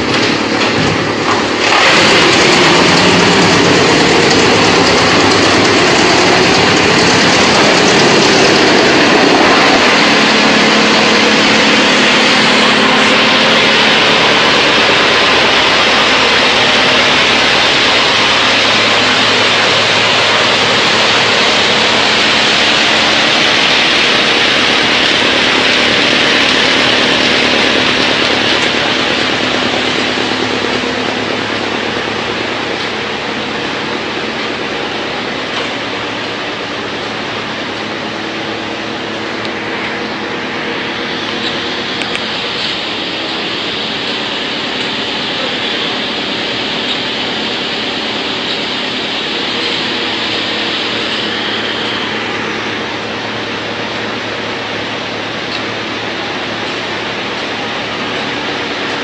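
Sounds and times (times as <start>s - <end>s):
wood chipper running: 0.0s - 59.0s.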